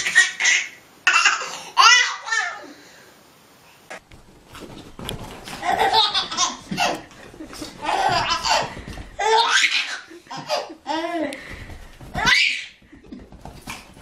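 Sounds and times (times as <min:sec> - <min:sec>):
baby laughing: 0:00.0 - 0:02.7, 0:05.5 - 0:11.4, 0:12.2 - 0:13.2.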